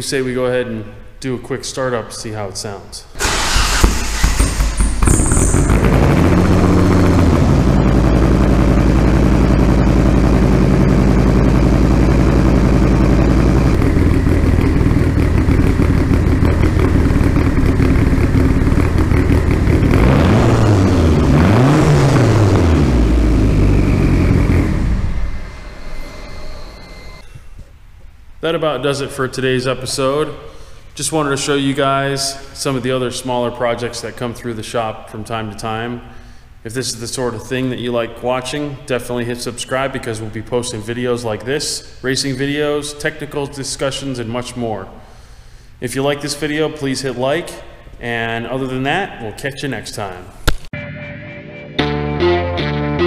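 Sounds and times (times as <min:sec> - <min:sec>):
car engine starting and idling: 0:03.2 - 0:27.2
engine revving: 0:03.2 - 0:27.2.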